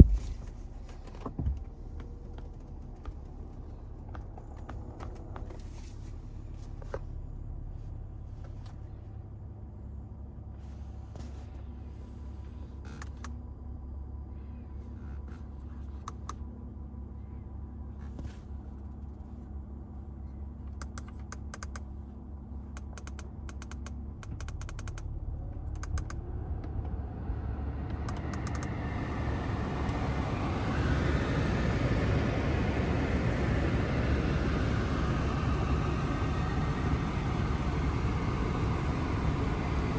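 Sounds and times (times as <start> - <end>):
air rushing from vents: 0.0 - 7.0, 25.6 - 39.9
steady low hum: 0.0 - 39.9
push buttons clicking: 22.7 - 25.1.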